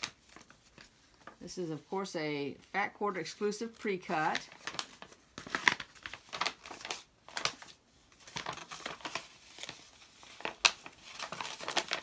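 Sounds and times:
packaging crinkling and rustling: 4.1s - 12.0s.

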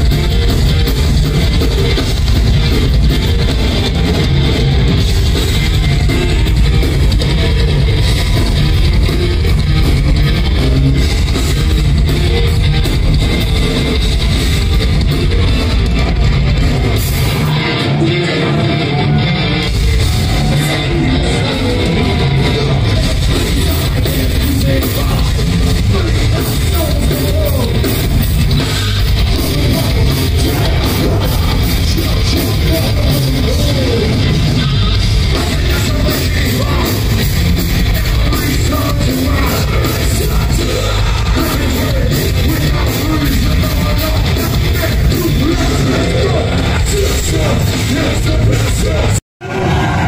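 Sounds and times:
live heavy rock band: 0.0s - 50.0s
person yelling and singing: 17.2s - 28.0s, 28.6s - 37.2s, 37.8s - 50.0s.

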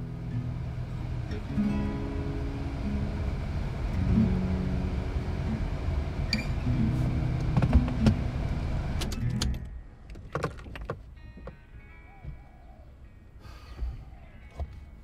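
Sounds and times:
soft acoustic guitar music: 0.0s - 9.8s
car noise: 0.0s - 15.0s.

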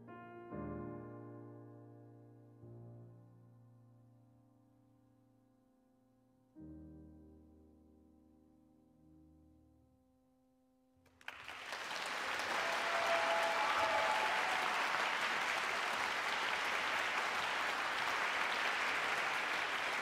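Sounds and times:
audience applause: 11.2s - 20.0s.

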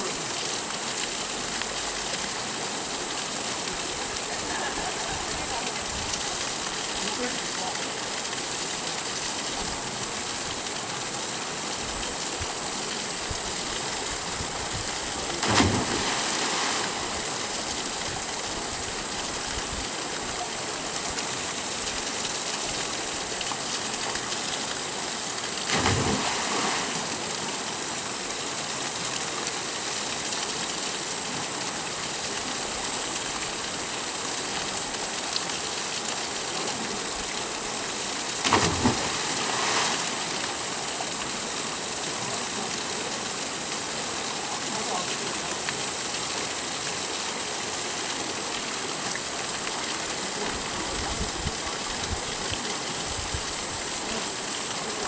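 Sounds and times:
waterfall pouring into pool: 0.0s - 55.0s
people splashing into water: 15.3s - 17.2s, 25.7s - 27.0s, 38.4s - 40.3s.

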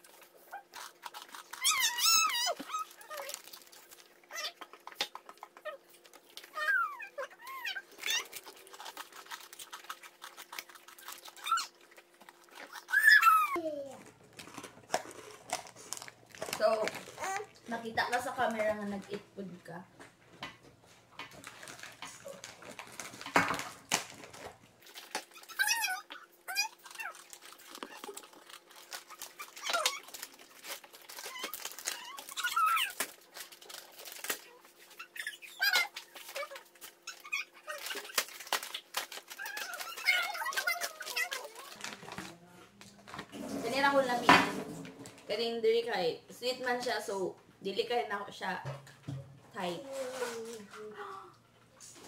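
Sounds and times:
biscuit crunching: 0.0s - 19.2s, 21.2s - 43.4s
dog whimpering: 0.4s - 3.4s, 6.5s - 9.3s, 12.5s - 13.6s, 25.3s - 28.4s, 29.2s - 30.1s, 31.1s - 33.0s, 39.3s - 41.8s
dog whining: 0.4s - 3.6s, 4.3s - 9.4s, 10.3s - 13.6s, 25.3s - 33.0s, 34.3s - 38.2s, 39.3s - 41.9s.

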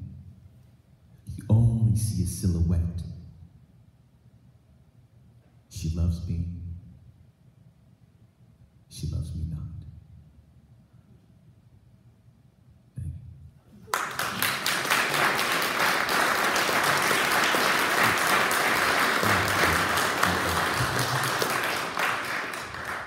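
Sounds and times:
audience applauding: 13.9s - 23.0s.

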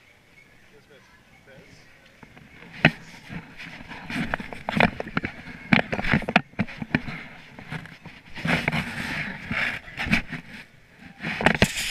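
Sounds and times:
indoor hubbub: 0.0s - 11.9s
camera handling knocks and rustling: 2.2s - 8.9s.

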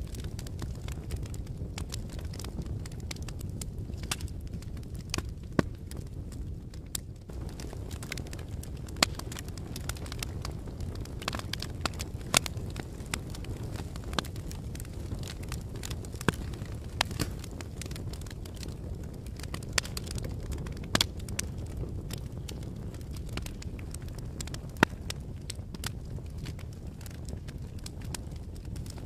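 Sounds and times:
fire crackling: 0.0s - 29.0s.

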